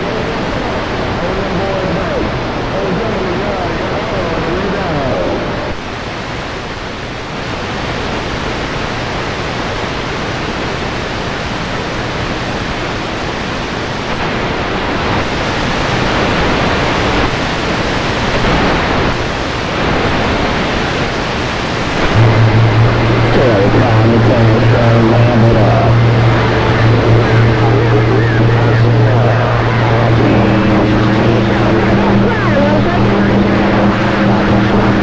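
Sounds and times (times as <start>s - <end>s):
radio static hiss: 0.0s - 35.0s.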